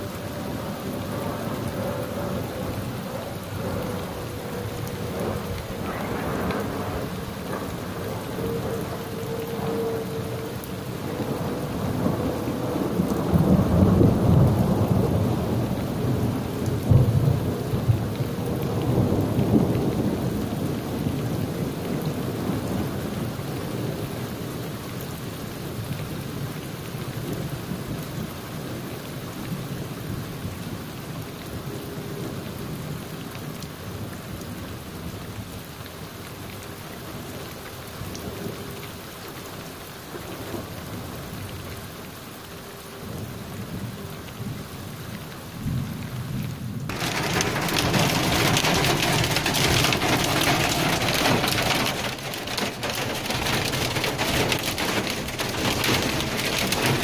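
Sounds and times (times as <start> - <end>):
rain falling: 0.0 - 57.0
thunder rolling: 0.5 - 21.1, 46.8 - 57.0
thunder clap: 5.0 - 8.9, 46.9 - 57.0.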